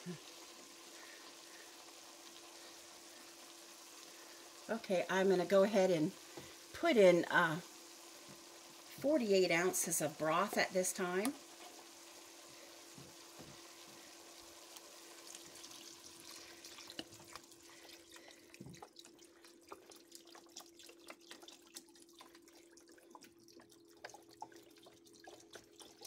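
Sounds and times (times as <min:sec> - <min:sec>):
broth trickling and splashing: 0:12.5 - 0:26.0.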